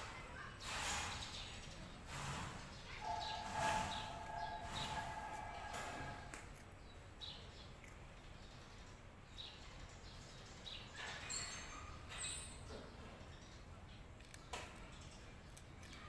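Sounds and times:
bird chirps: 2.8s - 6.4s.

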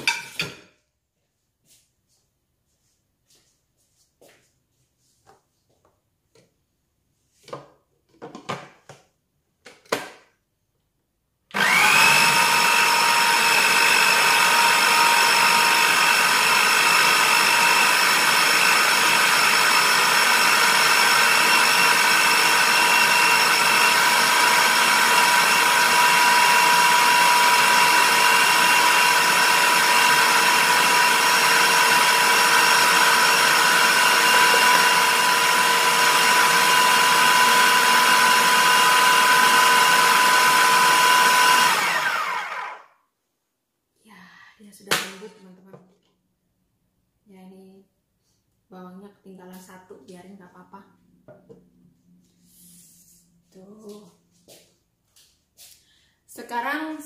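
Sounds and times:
food processor motor whining: 11.5s - 43.0s.

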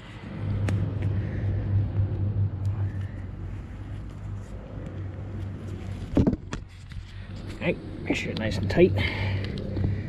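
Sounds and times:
low engine-like hum: 0.0s - 10.0s.

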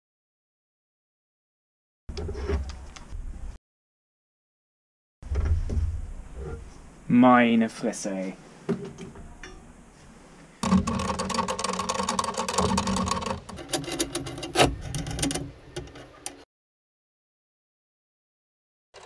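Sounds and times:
nuts clicking on threaded rod: 10.6s - 16.4s.

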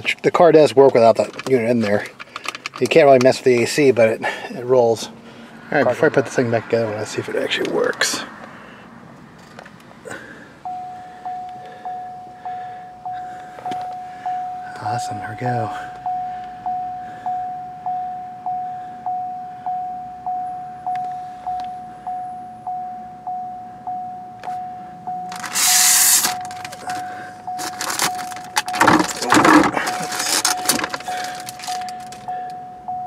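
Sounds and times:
car warning chime: 10.1s - 33.0s.

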